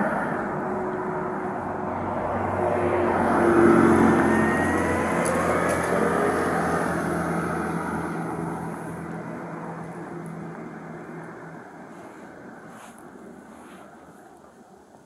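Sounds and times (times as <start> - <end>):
passing vehicle engine: 0.0 - 14.6.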